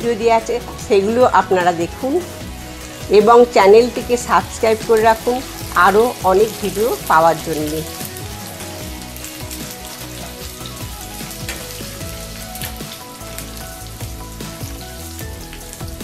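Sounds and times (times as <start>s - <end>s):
vegetables sizzling in oil: 0.1s - 16.0s.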